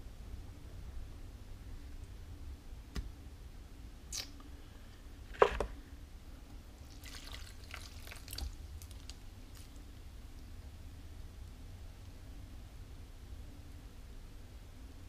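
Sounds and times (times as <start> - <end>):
small crackles: 6.8 - 10.5
wet clay drips and clicks: 6.9 - 9.8.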